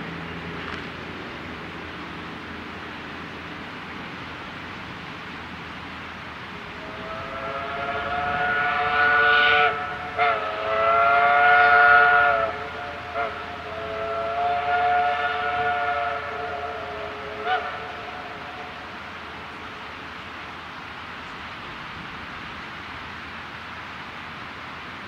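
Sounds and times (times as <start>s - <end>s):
steam locomotive chime whistle: 6.7s - 19.0s.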